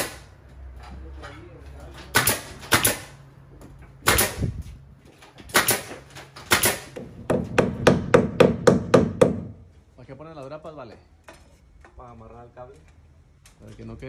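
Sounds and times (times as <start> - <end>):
nail gun shots: 0.0 - 0.3, 2.1 - 3.2, 4.0 - 4.6, 5.5 - 9.5.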